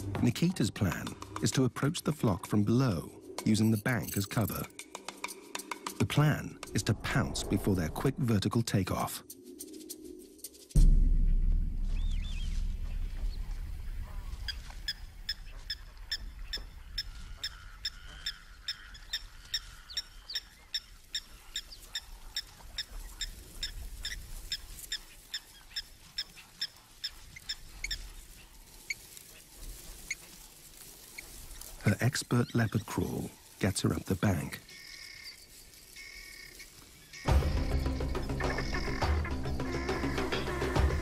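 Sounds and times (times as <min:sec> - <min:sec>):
deep low rumble: 0:10.8 - 0:17.7
guinea fowl calling: 0:12.0 - 0:33.6, 0:34.4 - 0:41.0.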